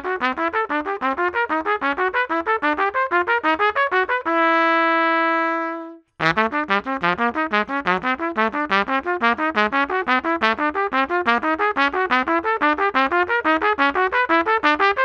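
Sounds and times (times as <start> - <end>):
trumpet playing fast notes: 0.0 - 15.0.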